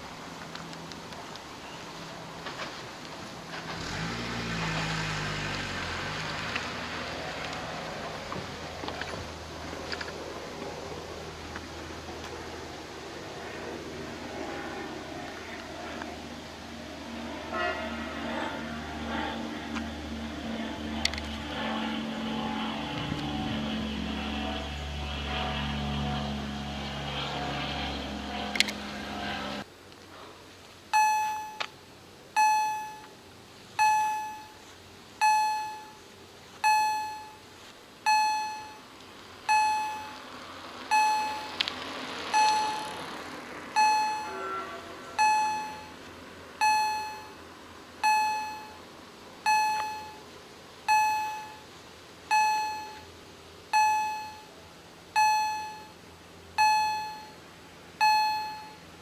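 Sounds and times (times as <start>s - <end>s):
steady low rumble: 6.6s - 29.8s
level crossing warning bells: 30.9s - 31.7s, 32.4s - 33.1s, 33.8s - 34.6s, 35.2s - 36.0s, 36.6s - 38.9s, 39.5s - 40.2s, 40.9s - 41.6s, 42.3s - 43.0s, 43.7s - 47.4s, 48.0s - 50.2s, 50.9s - 51.6s, 52.3s - 53.1s, 53.7s - 54.5s, 55.2s - 56.0s, 56.6s - 57.4s, 58.0s - 58.9s.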